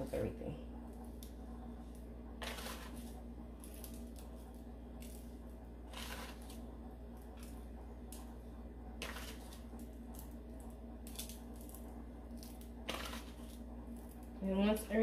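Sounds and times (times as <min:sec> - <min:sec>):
low steady hum: 0:00.0 - 0:15.0
breadcrumbs rustling: 0:00.8 - 0:15.0.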